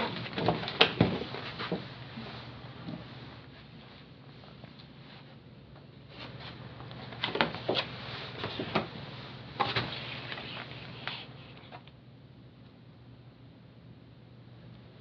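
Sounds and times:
paper signs rustling and crackling: 0:00.0 - 0:02.0, 0:06.2 - 0:11.9
faint room hum: 0:00.0 - 0:15.0.

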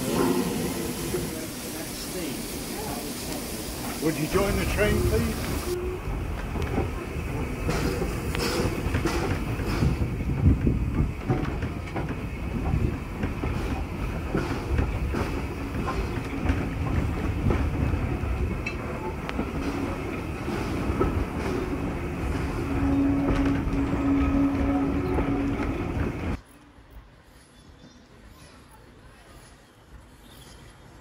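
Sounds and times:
railway carriage rumbling: 0:00.0 - 0:31.0
wheels clicking over rail joints: 0:03.8 - 0:26.4.

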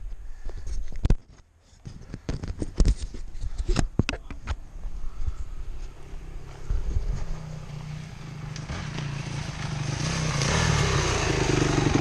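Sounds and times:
dirt bike engine idling: 0:04.9 - 0:12.0
dirt bike riding up: 0:04.9 - 0:12.0.

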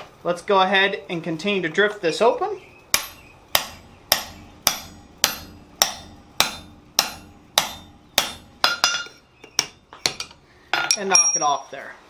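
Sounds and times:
hammer striking steel on anvil: 0:02.9 - 0:11.6.

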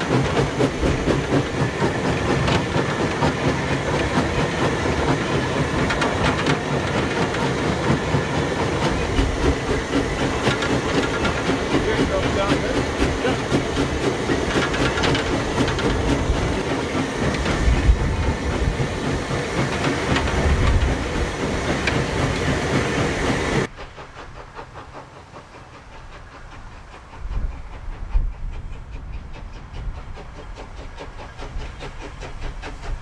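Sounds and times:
wheels clattering over rails: 0:00.0 - 0:23.7
steam locomotive approaching: 0:00.0 - 0:33.0
steam locomotive rumble and hiss: 0:00.0 - 0:33.0.

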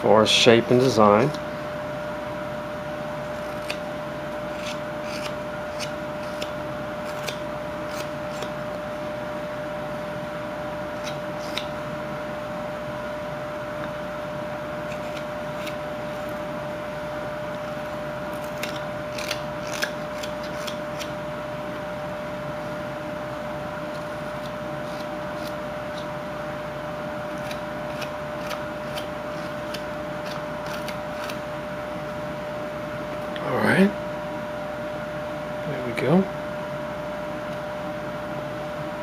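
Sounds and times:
steady background hum: 0:00.0 - 0:39.0
knife shaving wood: 0:03.1 - 0:08.9, 0:10.8 - 0:11.8, 0:14.6 - 0:21.4, 0:23.6 - 0:31.6.

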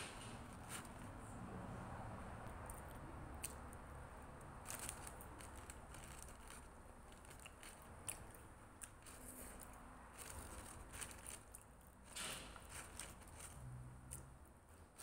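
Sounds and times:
chewing and biting sandwich: 0:02.3 - 0:12.0.

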